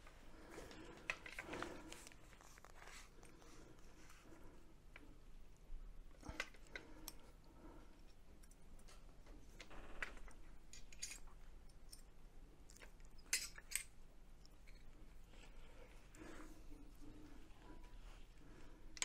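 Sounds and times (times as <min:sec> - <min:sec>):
metal parts clinking: 0:10.6 - 0:12.1, 0:13.2 - 0:14.0.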